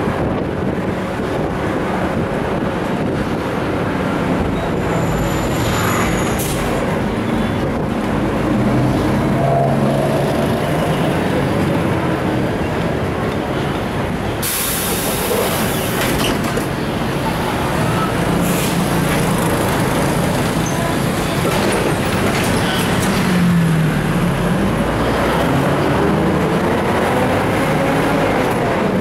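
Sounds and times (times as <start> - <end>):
bus diesel engine running: 0.0 - 29.0
road and traffic noise: 0.0 - 29.0
hiss: 14.4 - 16.0.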